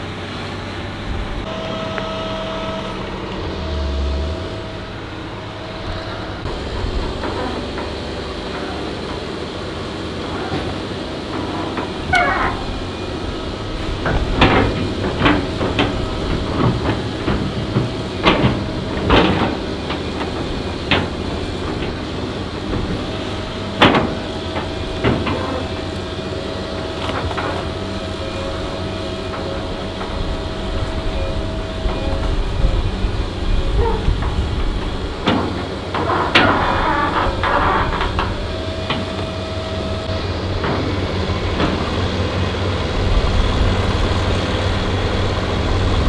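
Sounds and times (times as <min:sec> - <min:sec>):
excavator diesel engine under load: 0:00.0 - 0:46.0
steady whine: 0:00.0 - 0:46.0
heavy metallic clanks: 0:01.0 - 0:26.3.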